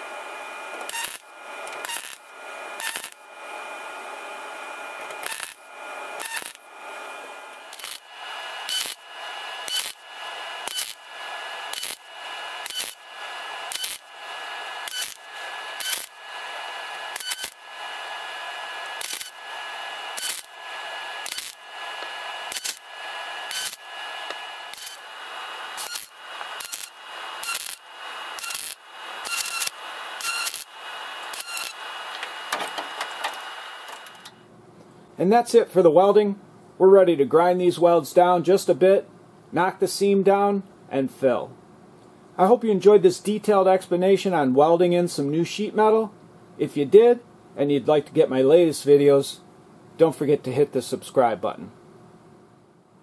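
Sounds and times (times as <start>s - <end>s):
welding arc crackling: 0.0s - 34.4s
steady whine: 0.0s - 34.5s.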